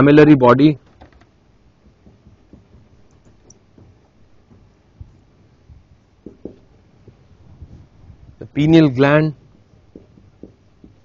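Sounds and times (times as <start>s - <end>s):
soft knocks: 0.8s - 8.3s, 9.3s - 11.0s
marker pen writing on whiteboard: 9.2s - 11.0s.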